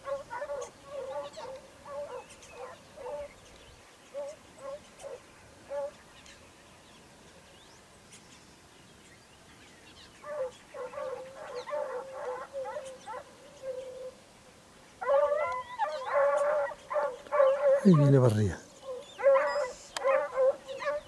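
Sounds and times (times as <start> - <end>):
distant hounds baying: 0.0 - 3.4, 4.1 - 6.0, 10.2 - 14.2, 15.0 - 21.0.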